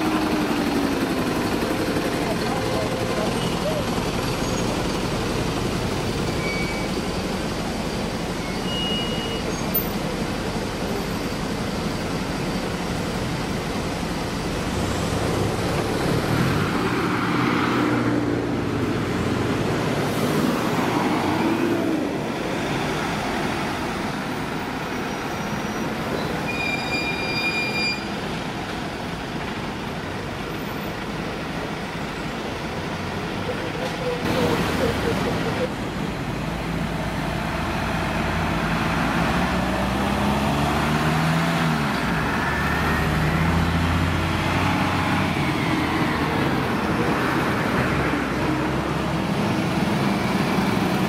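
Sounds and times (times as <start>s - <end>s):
vehicles driving past: 9.0s - 26.4s, 28.1s - 51.0s.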